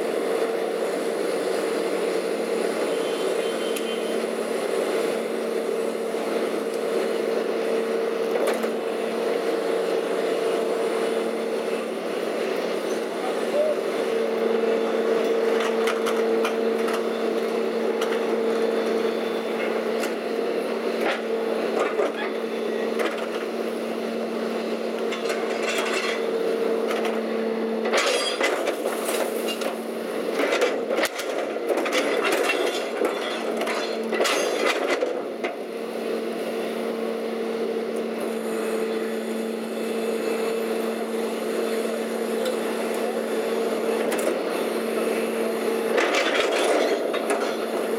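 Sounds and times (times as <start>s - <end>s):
garbage truck humming: 0.0s - 47.9s.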